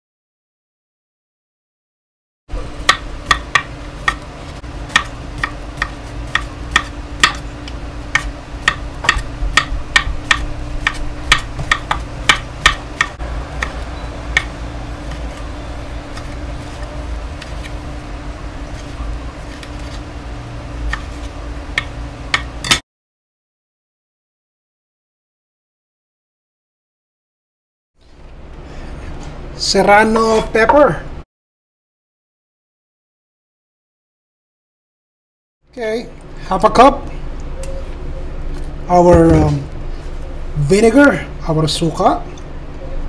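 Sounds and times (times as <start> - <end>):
steady low hum: 2.5 - 22.8, 28.0 - 31.2, 35.7 - 43.0
knife chopping on wooden board: 2.8 - 4.3, 4.9 - 7.5, 8.1 - 14.5, 20.8 - 22.8.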